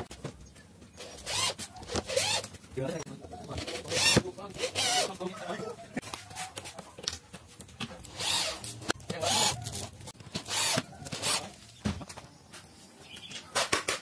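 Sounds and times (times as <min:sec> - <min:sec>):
electric drill drilling into wood: 0:08.1 - 0:08.6, 0:10.4 - 0:11.4.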